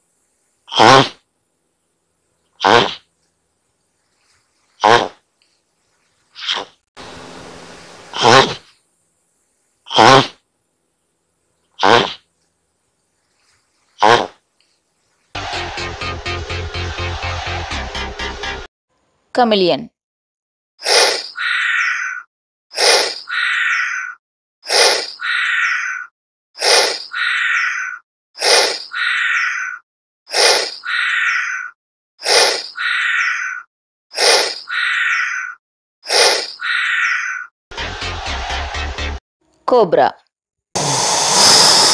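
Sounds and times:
chameleon call: 0:20.8 - 0:37.5.

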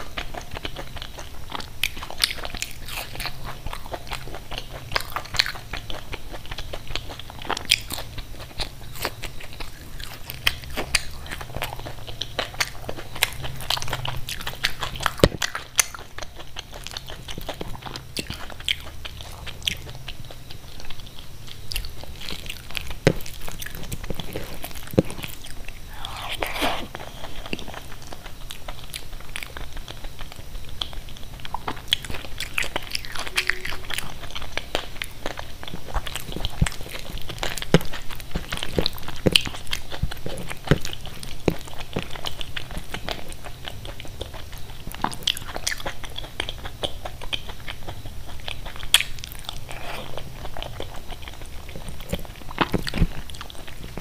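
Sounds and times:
chewing: 0:00.0 - 0:54.0
crunchy bites of fried snacks: 0:00.0 - 0:54.0.

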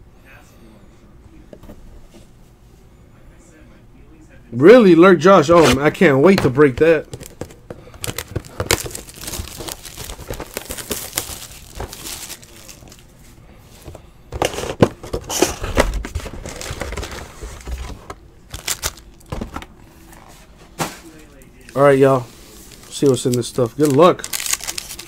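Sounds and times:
cardboard handled: 0:05.5 - 0:13.0
plastic wrap crinkling and tearing: 0:05.5 - 0:13.1, 0:14.4 - 0:17.6, 0:18.5 - 0:19.5, 0:22.7 - 0:25.0.

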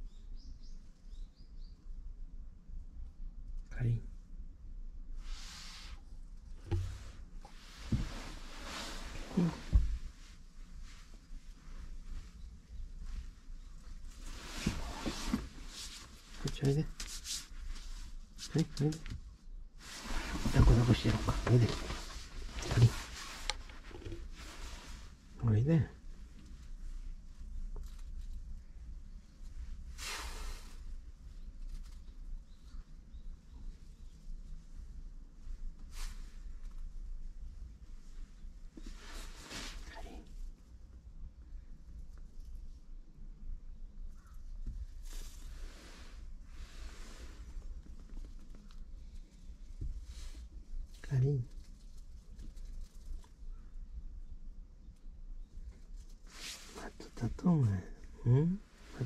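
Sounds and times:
hand rustling cat fur: 0:05.2 - 0:40.8, 0:44.2 - 0:53.7, 0:55.6 - 0:57.8
soft low thumps: 0:06.6 - 0:08.4, 0:09.1 - 0:10.3
padded jacket sleeve rustling: 0:06.7 - 0:12.4, 0:13.9 - 0:18.0, 0:19.8 - 0:23.6.

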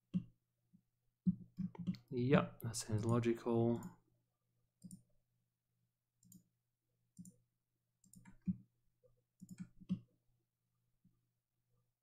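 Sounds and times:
computer mouse clicks: 0:01.2 - 0:02.1, 0:04.8 - 0:05.1, 0:06.2 - 0:06.5, 0:07.2 - 0:07.4, 0:08.0 - 0:08.7, 0:09.4 - 0:10.1.

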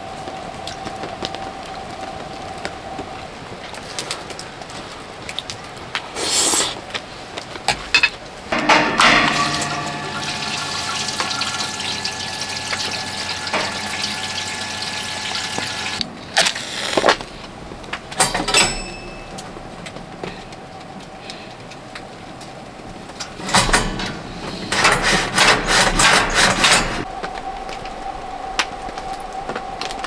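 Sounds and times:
pump whine: 0:08.5 - 0:17.5
liquid flowing: 0:08.6 - 0:16.0.

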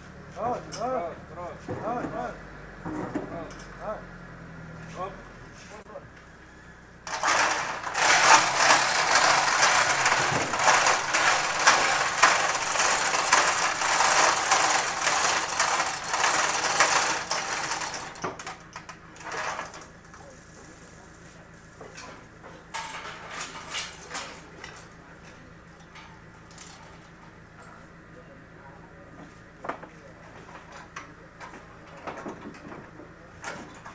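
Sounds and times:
mechanical rattling and clattering: 0:07.0 - 0:27.8.

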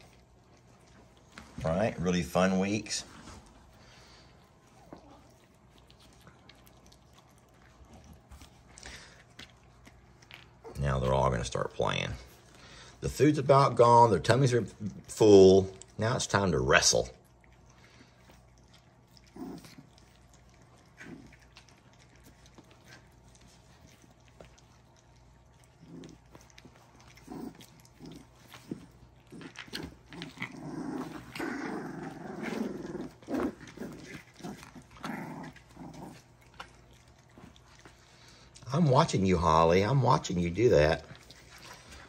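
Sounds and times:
puppies making small noises: 0:00.0 - 0:42.0.

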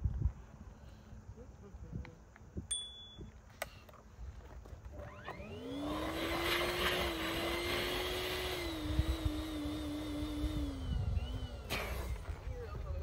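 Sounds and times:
electric air pump motor hum: 0:04.9 - 0:13.0.

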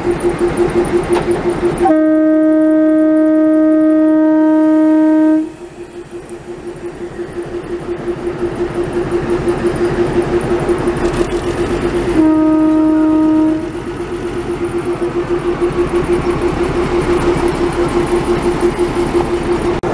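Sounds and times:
diesel engine throbbing: 0:00.0 - 0:19.9
locomotive horn: 0:01.8 - 0:06.1, 0:12.0 - 0:14.0.

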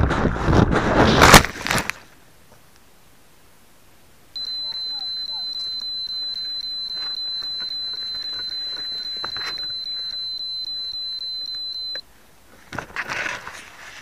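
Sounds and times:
high-pitched electronic tone: 0:04.4 - 0:12.0.

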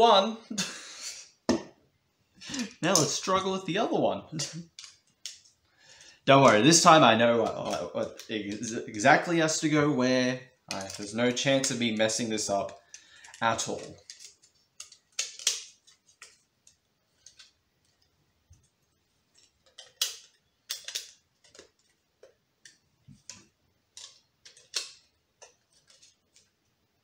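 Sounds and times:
plastic parts clicking and snapping: 0:04.5 - 0:05.5, 0:07.4 - 0:08.7, 0:10.7 - 0:12.1, 0:12.7 - 0:18.7, 0:19.3 - 0:26.6.

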